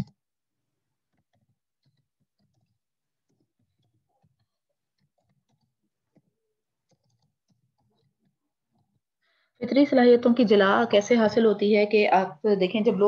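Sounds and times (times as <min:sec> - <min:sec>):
faint keyboard typing: 0:01.0 - 0:09.1.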